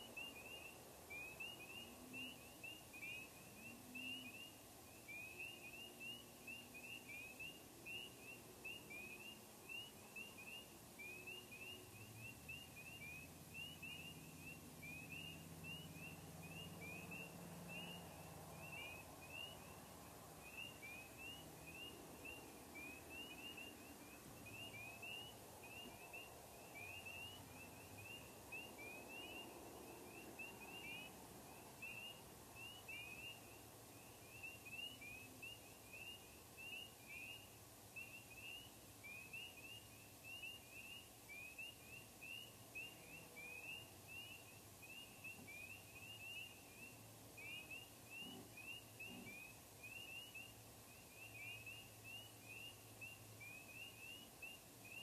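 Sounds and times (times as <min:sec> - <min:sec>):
faint low drone: 0:00.0 - 0:38.0
frogs peeping: 0:00.0 - 0:55.0.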